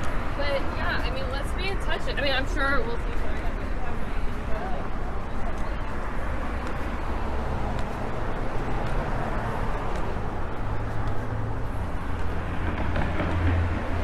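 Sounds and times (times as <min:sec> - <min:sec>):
traffic noise: 0:00.0 - 0:14.0
vehicle engine humming: 0:00.0 - 0:14.0.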